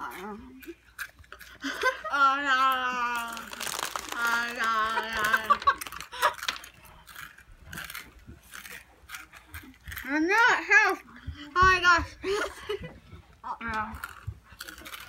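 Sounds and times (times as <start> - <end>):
crinkling and crunching clicks: 3.1 - 10.2, 13.6 - 15.0.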